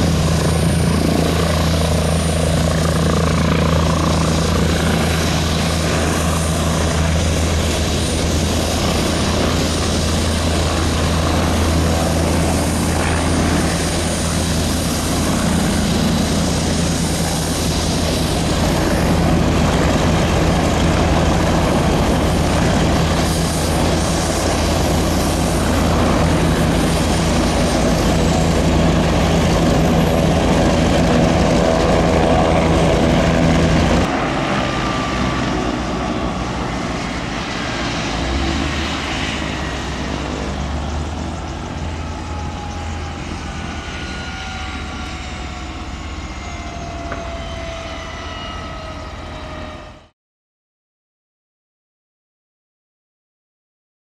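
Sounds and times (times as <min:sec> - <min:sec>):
helicopter droning: 0:00.0 - 0:50.1
high whine falling in pitch: 0:38.0 - 0:50.1.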